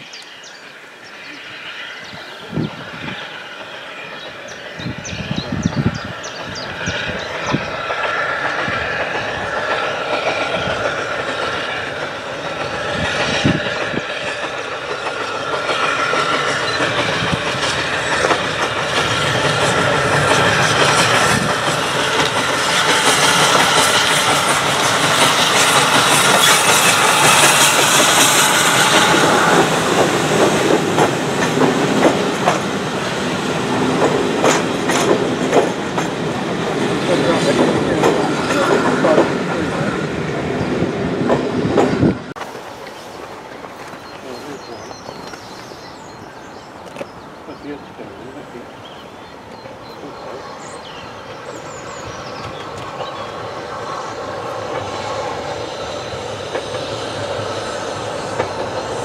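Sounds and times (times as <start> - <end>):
passing train rush and hiss: 0.0 - 59.0
train wheels clicking on rail joints: 3.1 - 59.0.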